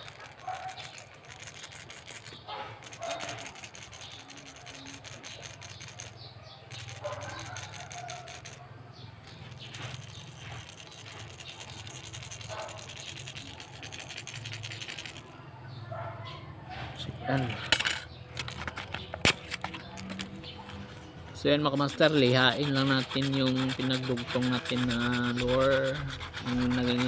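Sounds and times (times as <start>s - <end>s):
balls rattling inside plastic lure: 0.0s - 15.4s, 21.6s - 27.0s.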